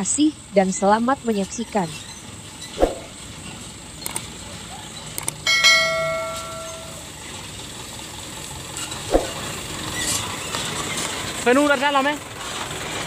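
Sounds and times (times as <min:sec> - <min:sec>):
bell-like notification chime: 0:05.5 - 0:07.1.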